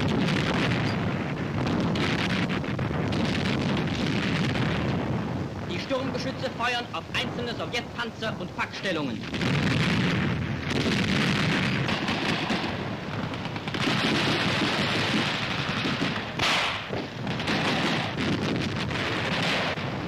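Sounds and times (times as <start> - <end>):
guns firing: 0.0 - 5.0, 9.2 - 20.0
shells exploding: 0.0 - 6.6, 9.2 - 20.0.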